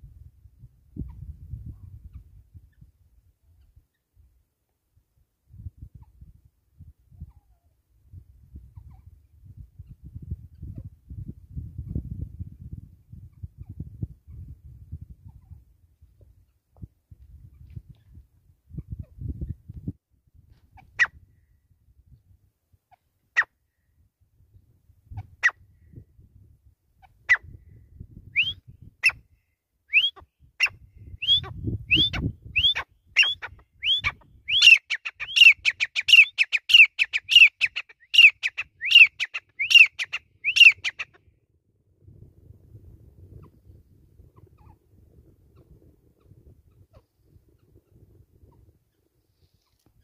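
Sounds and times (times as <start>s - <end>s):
francolin calling: 28.4s - 29.2s, 29.9s - 41.2s.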